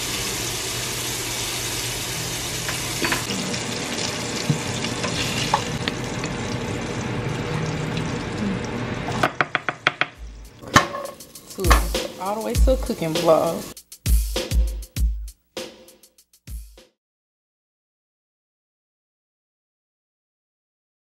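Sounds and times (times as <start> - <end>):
food sizzling in a pan: 0.0 - 9.2, 10.9 - 13.8.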